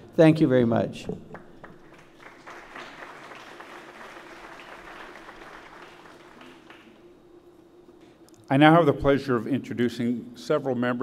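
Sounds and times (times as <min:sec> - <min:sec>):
faint steady hum: 0:00.0 - 0:11.0
audience applauding: 0:01.3 - 0:07.0.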